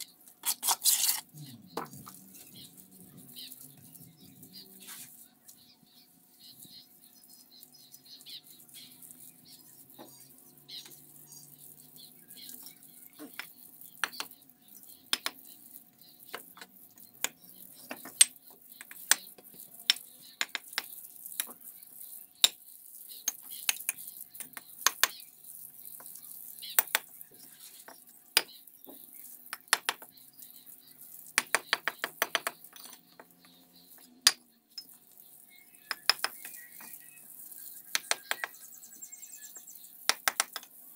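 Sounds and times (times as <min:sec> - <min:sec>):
trowel clinking on bricks: 0:00.0 - 0:01.9, 0:35.8 - 0:37.0.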